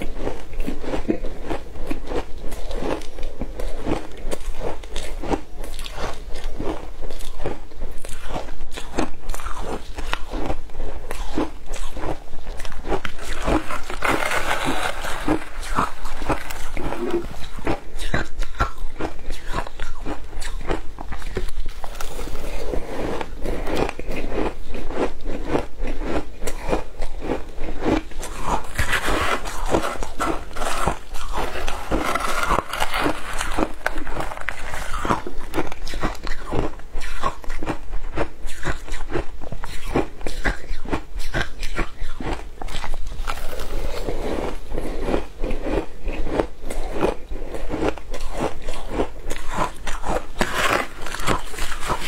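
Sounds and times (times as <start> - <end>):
shaved ice crunching: 13.1 - 17.5, 28.2 - 35.3, 50.0 - 52.0.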